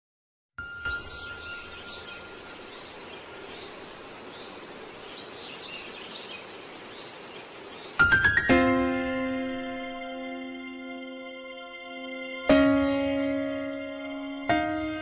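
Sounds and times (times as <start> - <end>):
hiss-like background noise: 0.9 - 12.5
background music chord: 8.0 - 15.0.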